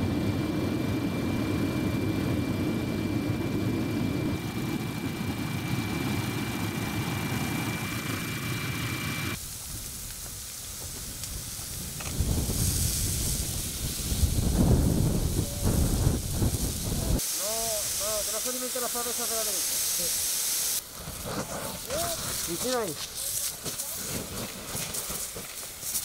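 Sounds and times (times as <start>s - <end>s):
aircraft engine with thin whine: 0.0s - 17.2s
fire hose spraying water: 9.3s - 26.0s.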